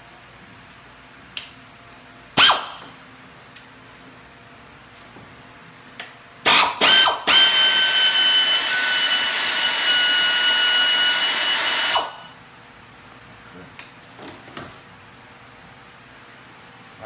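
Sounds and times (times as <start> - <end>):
power ratchet whining: 2.4 - 2.8, 6.5 - 12.3.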